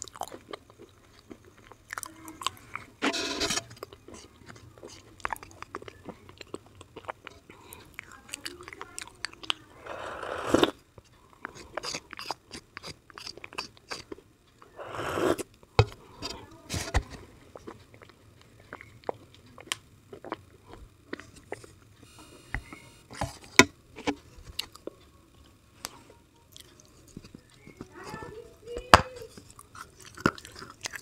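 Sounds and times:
sticky chewing and lip-smacking: 0:00.0 - 0:03.0, 0:03.7 - 0:15.7, 0:17.5 - 0:22.8, 0:24.4 - 0:28.3, 0:29.2 - 0:31.0
wet slurps: 0:09.8 - 0:10.8, 0:14.8 - 0:15.4.

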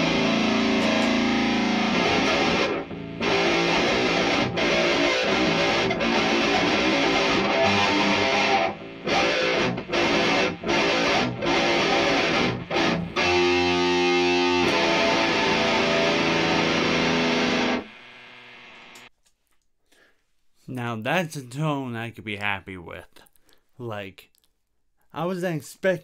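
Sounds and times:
distorted electric guitar chords: 0:00.0 - 0:19.1.

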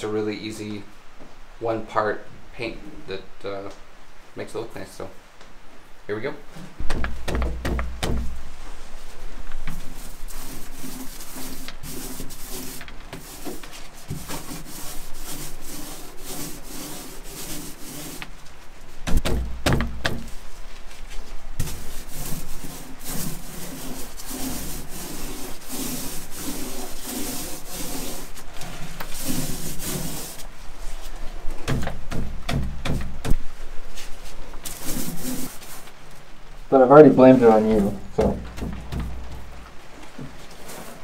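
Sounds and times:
knock: 0:06.8 - 0:08.4, 0:19.1 - 0:20.3, 0:31.7 - 0:33.4, 0:38.2 - 0:39.5
paint roller rubbing: 0:07.9 - 0:18.4, 0:19.1 - 0:35.9, 0:37.2 - 0:39.5, 0:40.3 - 0:41.0.

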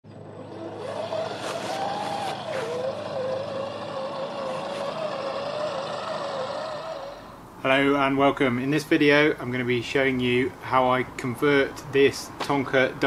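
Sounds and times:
toy truck electric motor whining: 0:00.2 - 0:07.4.

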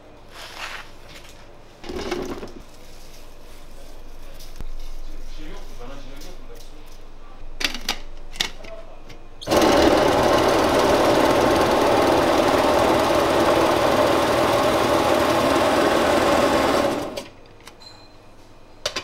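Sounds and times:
electric vegetable chopper running: 0:09.5 - 0:17.3.

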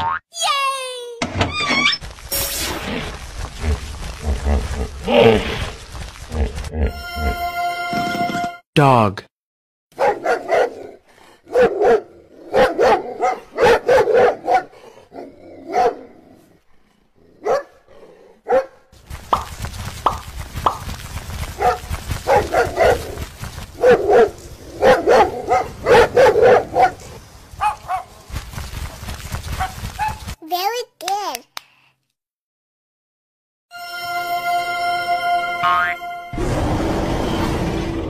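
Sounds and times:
dog barking: 0:10.0 - 0:16.1, 0:17.4 - 0:17.8, 0:18.4 - 0:18.9, 0:21.5 - 0:23.2, 0:23.8 - 0:27.0, 0:27.6 - 0:28.1.

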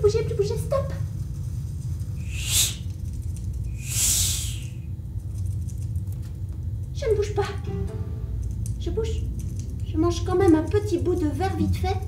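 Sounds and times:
low hum: 0:00.0 - 0:10.4
breathy owl hiss: 0:02.2 - 0:03.0, 0:03.7 - 0:05.0.

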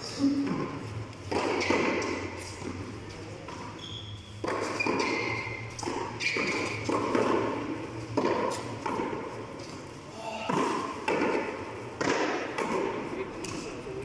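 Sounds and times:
ball thumping on wall and floor: 0:00.5 - 0:02.8, 0:04.4 - 0:09.3, 0:10.4 - 0:13.1.

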